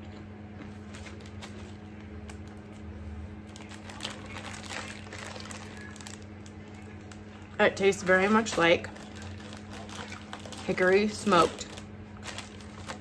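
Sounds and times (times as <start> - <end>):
soft crinkling and clicking: 3.4 - 13.0.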